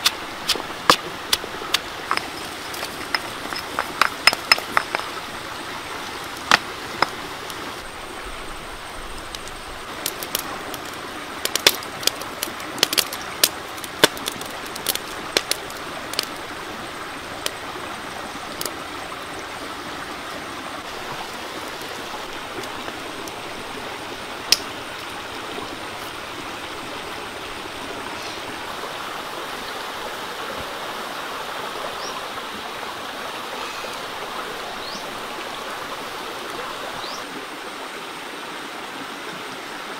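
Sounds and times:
sharp pops and crackles: 0.0 - 5.2, 9.2 - 16.4, 24.4 - 25.1.

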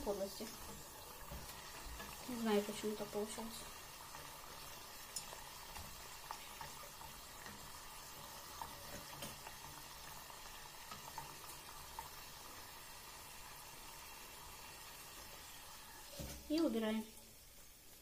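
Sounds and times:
hot oil sizzling and bubbling: 0.0 - 18.0.

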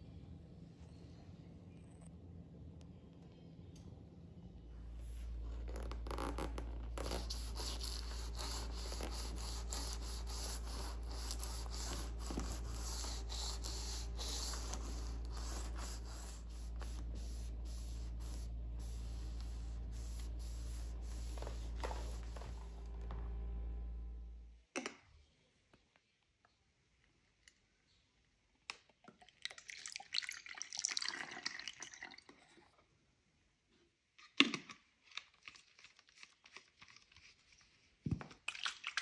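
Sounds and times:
steady low hum: 0.0 - 24.6
cloth wiping rubber seal: 5.0 - 23.6
brush scrubbing rubber seal: 5.7 - 23.0.

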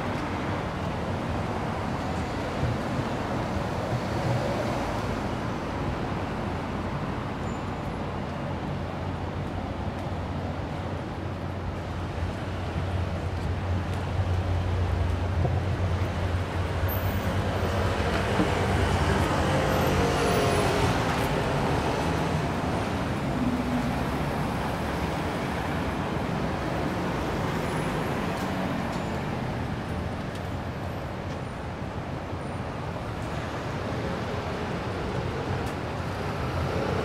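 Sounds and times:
vehicles passing close by: 8.7 - 37.0.

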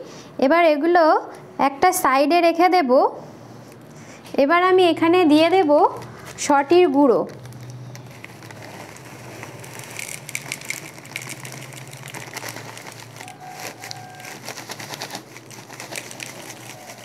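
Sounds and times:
flour pouring into metal bowl: 8.5 - 13.8.

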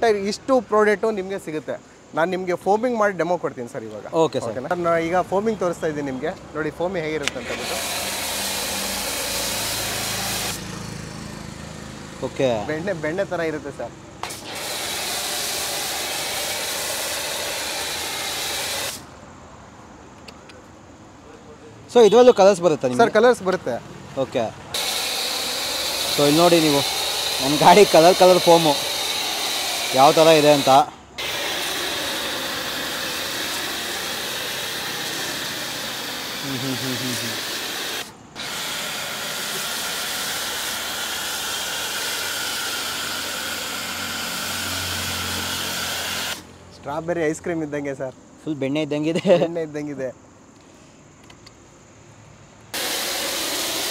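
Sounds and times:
pressure washer spraying foam: 7.2 - 11.5, 14.2 - 19.1, 24.7 - 46.5, 52.7 - 53.9.

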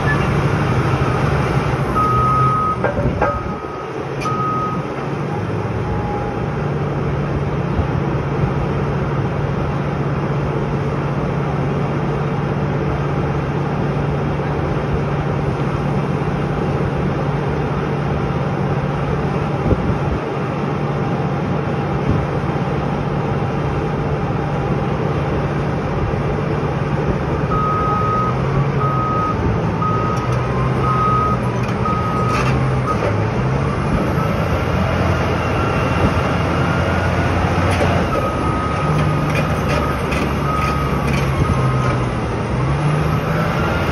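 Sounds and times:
bulldozer diesel engine running: 0.0 - 43.9
reversing alarm beeping: 2.0 - 4.9, 27.5 - 34.6, 37.7 - 42.0.

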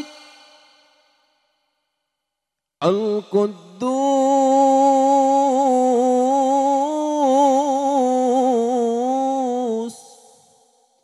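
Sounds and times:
man chanting into microphone: 0.0 - 0.8, 2.8 - 10.5.

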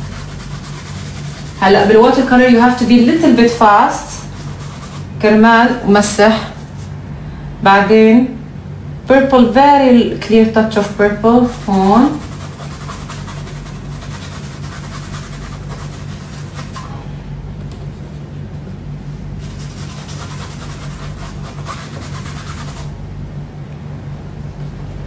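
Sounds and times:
paintbrush scratching on paper: 0.0 - 3.2, 4.0 - 5.2, 11.3 - 16.9, 19.4 - 22.9
steady low hum: 0.0 - 25.0.

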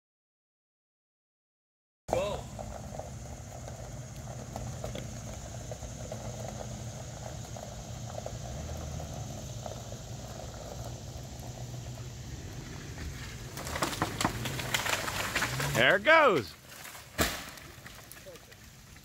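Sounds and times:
van engine running at low revs: 2.2 - 15.9
loud crackling: 12.6 - 19.0.

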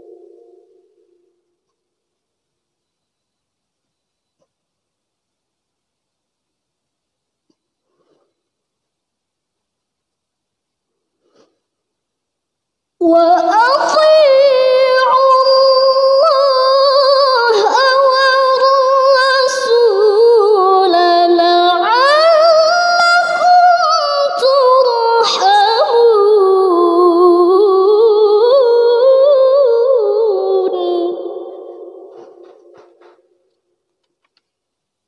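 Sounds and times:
woman reciting melodically: 13.0 - 33.1.

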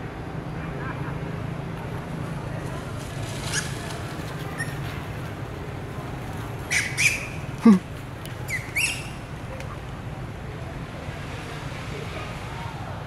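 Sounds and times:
monkey screeching: 6.7 - 7.8.

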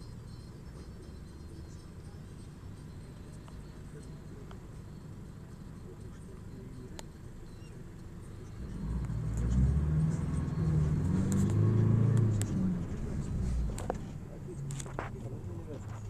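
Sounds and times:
car driving past: 8.5 - 14.7.

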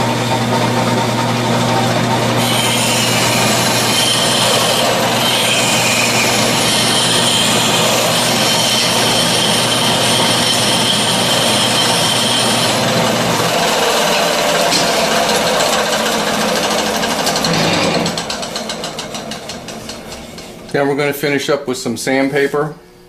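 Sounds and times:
metal lathe humming: 0.0 - 20.8
file hissing on spinning metal: 2.4 - 13.0.

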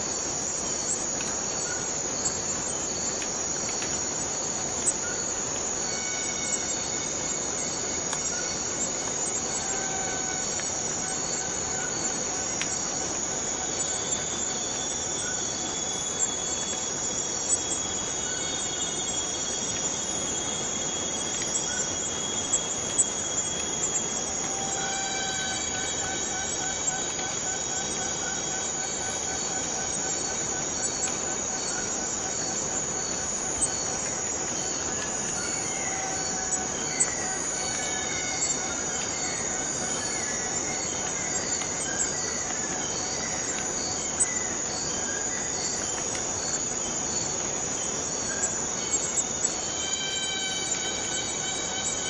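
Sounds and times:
insects buzzing in chorus: 0.0 - 52.0
pulsing whistle-like insect tone: 0.0 - 52.0.

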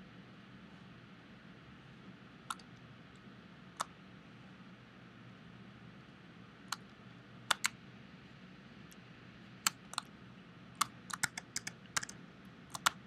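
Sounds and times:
faint low hum: 0.0 - 13.0
keyboard and mouse clicking: 2.5 - 2.8, 7.5 - 7.8, 9.6 - 10.1, 10.8 - 13.0.

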